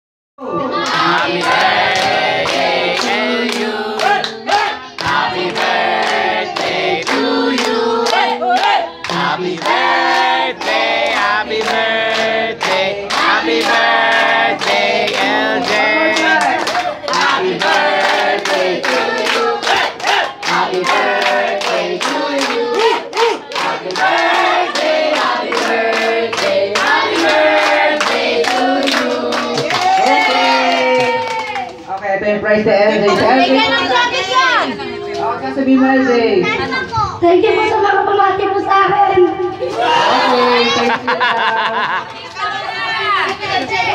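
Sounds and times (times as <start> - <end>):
group singing with music: 0.4 - 30.0.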